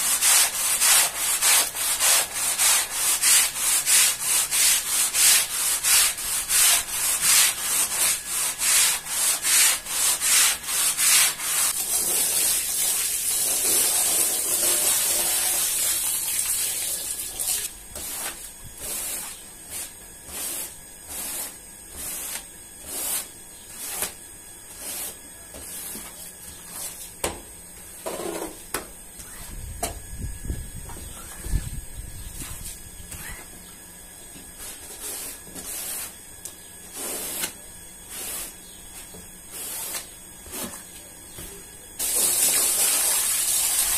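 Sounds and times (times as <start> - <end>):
push broom scrubbing wet rug: 0.0 - 27.0, 36.9 - 38.5, 42.0 - 43.9.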